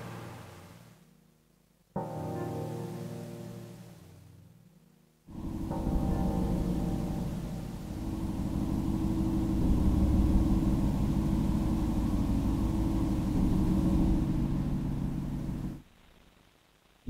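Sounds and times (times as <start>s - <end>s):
dense rumbling synth drone: 5.3s - 15.8s.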